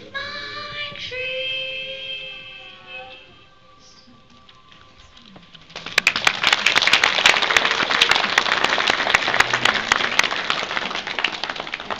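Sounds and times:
audience applauding: 5.7 - 11.9.

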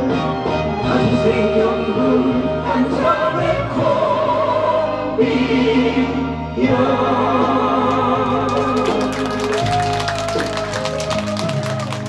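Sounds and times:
man singing into microphone: 0.8 - 3.7.

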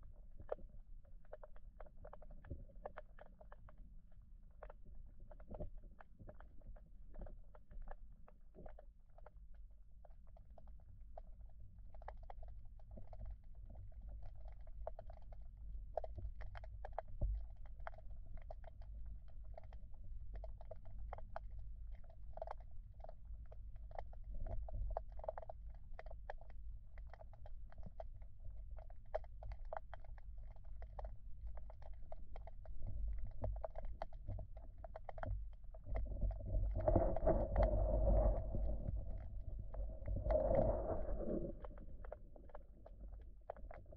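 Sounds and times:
small underwater clicks: 0.0 - 43.9
muffled underwater current rumble: 27.0 - 43.9.

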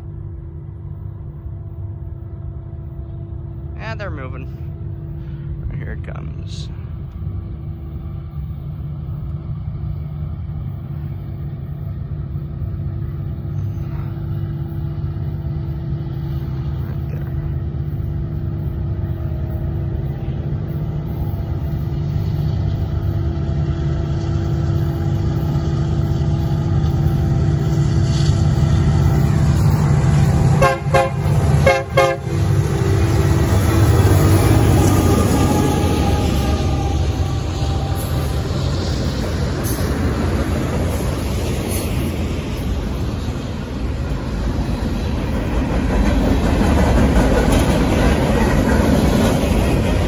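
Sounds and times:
diesel locomotive rumble: 0.0 - 50.0
train air horn blasts: 30.5 - 32.8.

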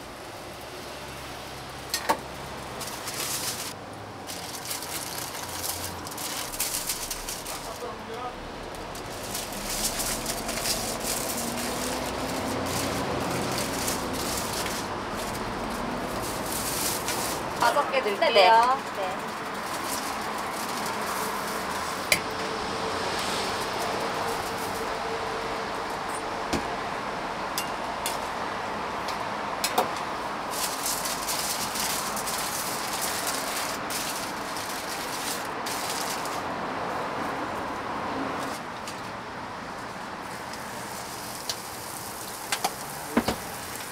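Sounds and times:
cooking hiss: 40.2 - 43.9.

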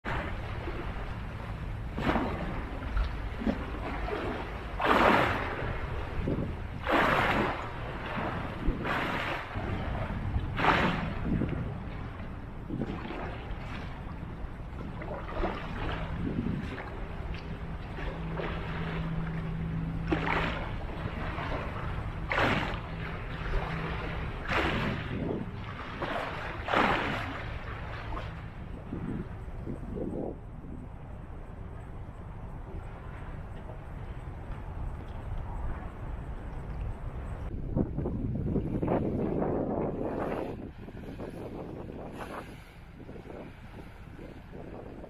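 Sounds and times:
waves splashing on concrete seawall: 0.0 - 29.3
low wind rumble on microphone: 0.0 - 45.0
steady low hum: 0.0 - 45.0.

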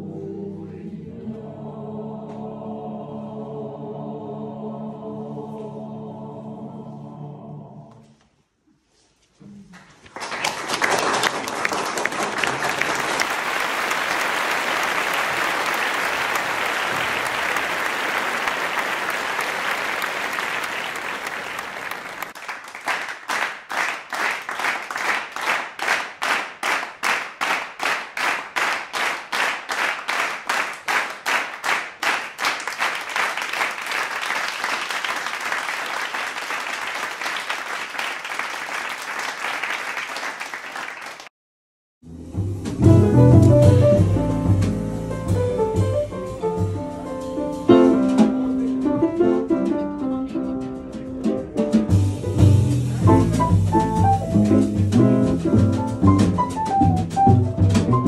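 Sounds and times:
audience applauding: 9.8 - 41.3
rhythmic clapping in unison: 10.0 - 41.3.

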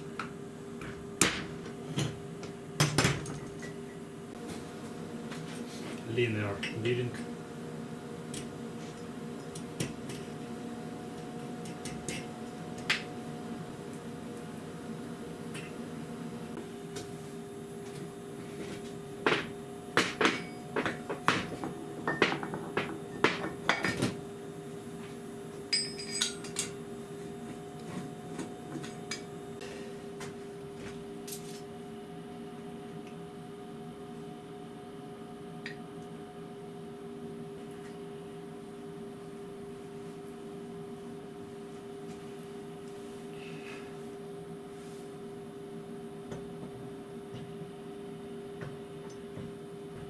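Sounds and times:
steady hum: 0.0 - 50.0
metal parts knocking and clinking: 25.8 - 26.7.

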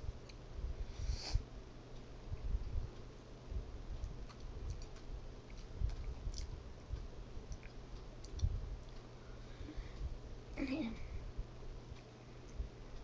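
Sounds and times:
chewing: 4.0 - 6.5, 7.5 - 9.1.

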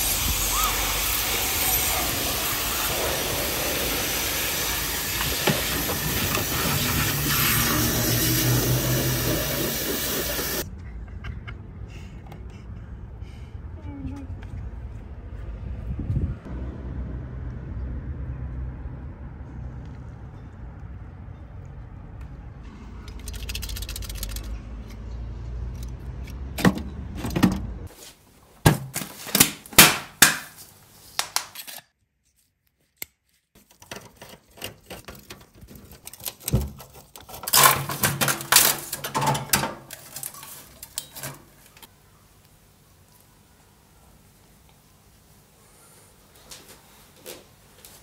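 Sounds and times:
computer parts clattering: 33.6 - 41.9.

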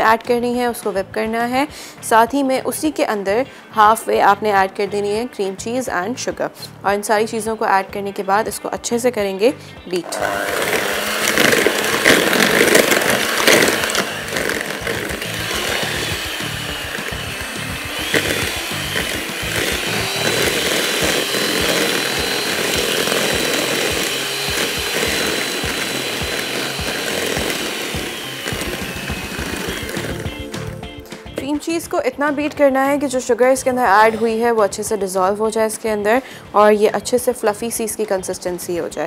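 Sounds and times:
electric hand mixer running: 10.0 - 31.4.

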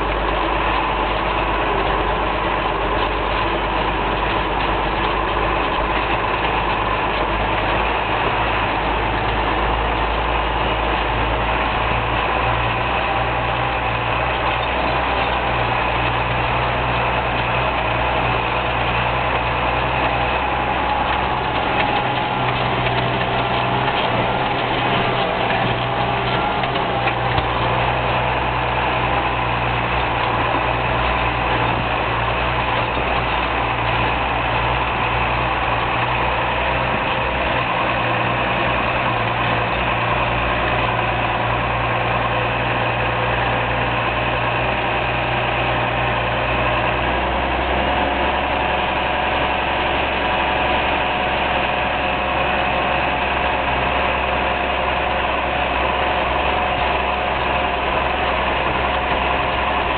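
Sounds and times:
tractor diesel engine running: 0.0 - 59.9.

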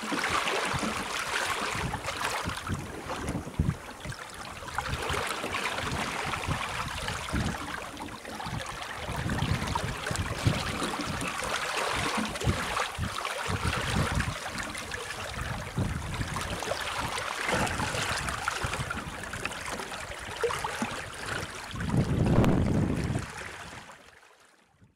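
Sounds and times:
sea water rushing past boat: 0.0 - 24.6
wind buffeting microphone: 0.7 - 23.8.

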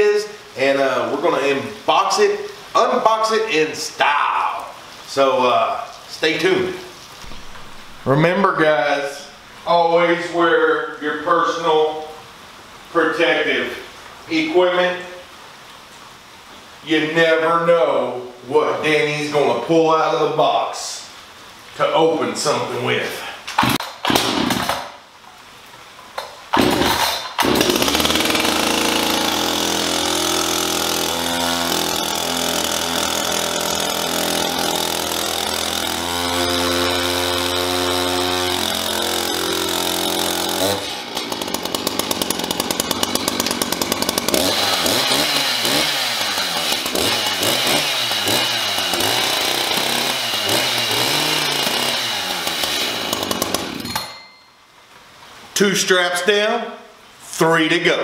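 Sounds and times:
chainsaw idling and revving: 7.2 - 8.2, 23.6 - 24.7, 26.5 - 54.1.

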